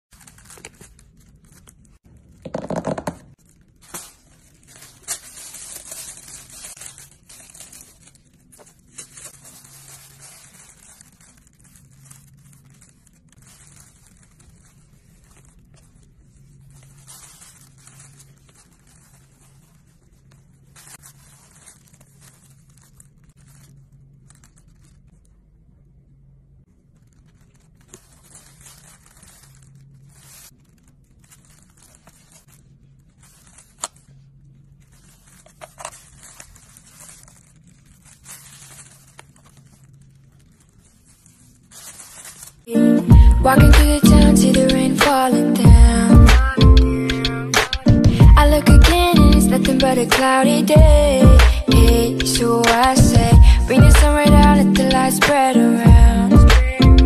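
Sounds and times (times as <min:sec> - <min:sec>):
rustling of a leather bag handled: 0:03.8 - 0:25.1, 0:27.0 - 0:42.7.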